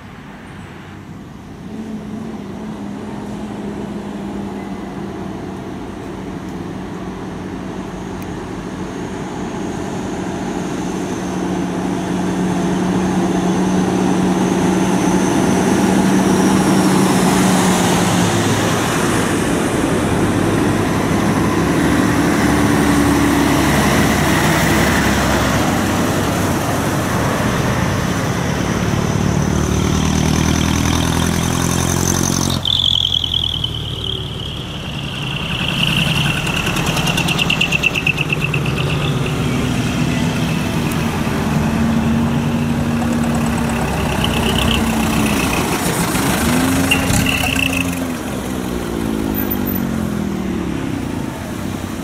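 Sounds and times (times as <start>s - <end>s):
diesel trucks passing: 0.0s - 52.0s.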